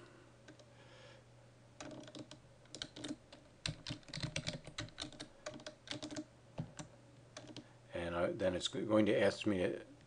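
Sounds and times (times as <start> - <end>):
keyboard typing: 1.8 - 7.6.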